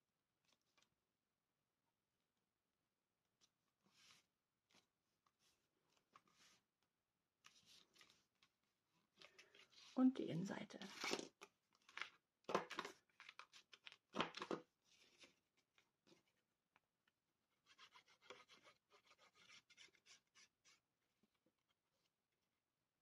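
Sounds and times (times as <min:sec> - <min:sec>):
paper rustling and tapping: 0:11.8 - 0:15.3.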